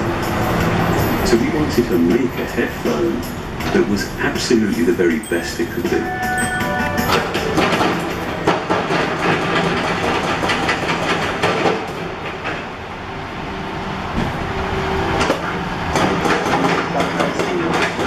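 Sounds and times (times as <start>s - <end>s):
heavy vehicle engines rumbling: 0.0s - 18.0s
clicks and clattering knocks: 7.4s - 12.6s, 15.2s - 18.0s.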